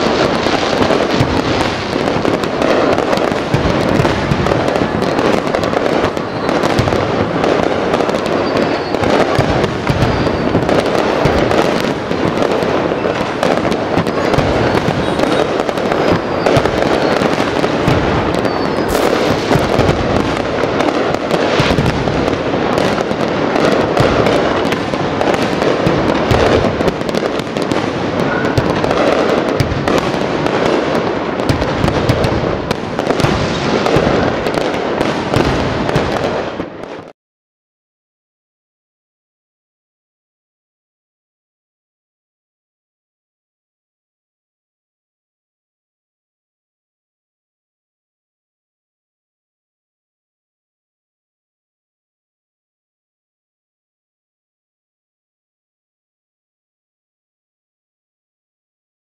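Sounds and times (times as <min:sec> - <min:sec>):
fireworks bursting: 0:00.0 - 0:37.2.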